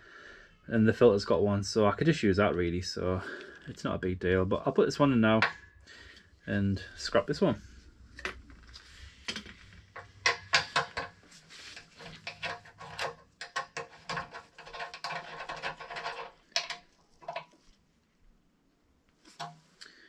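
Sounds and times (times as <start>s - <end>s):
gloved hands rustling: 7.6s - 12.8s.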